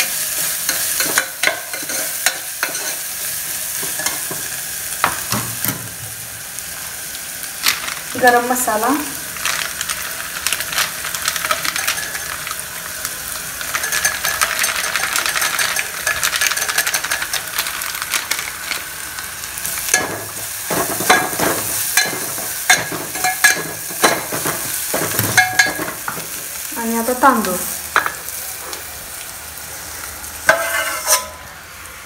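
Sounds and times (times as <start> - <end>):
masala frying in hot oil: 0.0 - 32.0
metal spoon scraping a pot: 30.5 - 31.4.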